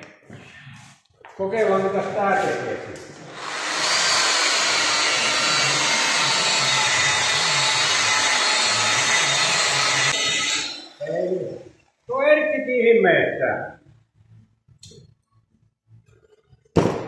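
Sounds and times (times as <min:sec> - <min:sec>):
electric polisher humming: 0:03.3 - 0:10.9.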